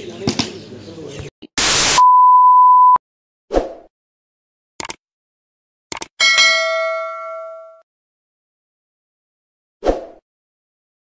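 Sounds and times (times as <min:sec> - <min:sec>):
test-tone beep: 0:02.0 - 0:03.0
clicks: 0:04.8 - 0:05.0, 0:05.9 - 0:06.1
bell ding: 0:06.2 - 0:07.8.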